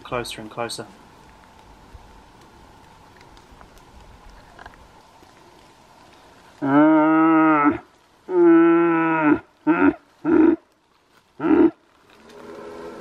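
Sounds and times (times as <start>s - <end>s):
stag roaring: 6.6s - 10.6s, 11.4s - 13.0s.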